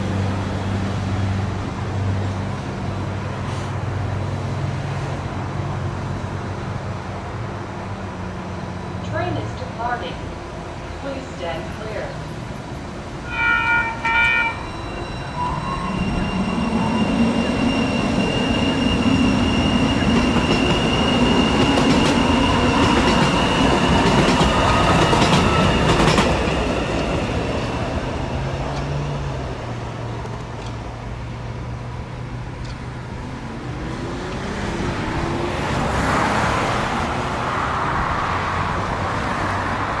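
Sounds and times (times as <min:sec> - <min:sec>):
light rail train passing: 0:00.0 - 0:40.0
traffic noise: 0:00.0 - 0:40.0
train horn toots: 0:13.3 - 0:16.2.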